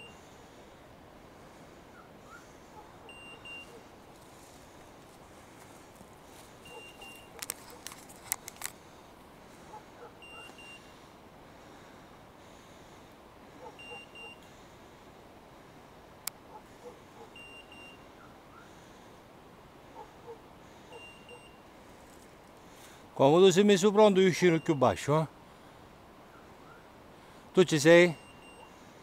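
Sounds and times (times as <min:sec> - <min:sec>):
beeper collar double beep: 0:03.1 - 0:03.7, 0:13.8 - 0:14.4
sharp clicks: 0:07.0 - 0:08.8.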